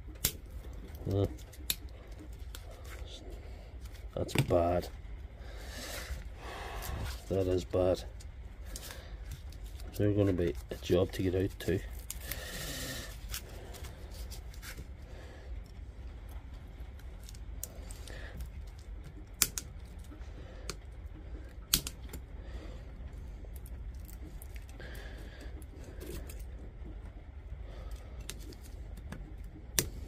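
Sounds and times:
sharp snaps: 0:21.7 - 0:22.0.

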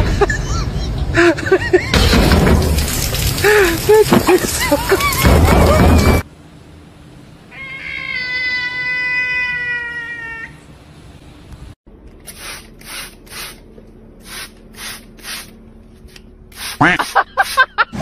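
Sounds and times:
cat meowing: 0:07.5 - 0:10.6
spray bottle squirting: 0:12.2 - 0:13.6, 0:14.2 - 0:15.5, 0:16.5 - 0:17.7.

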